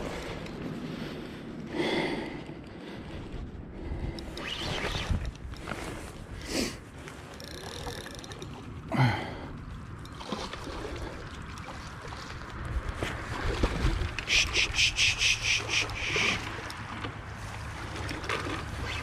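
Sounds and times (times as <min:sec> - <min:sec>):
low wind: 0:00.0 - 0:19.0
fish splashing and thrashing: 0:04.4 - 0:19.0.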